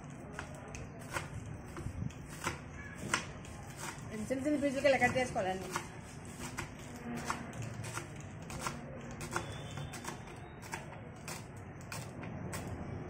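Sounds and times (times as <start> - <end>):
knife chopping on wooden board: 0.3 - 4.0, 4.8 - 12.7.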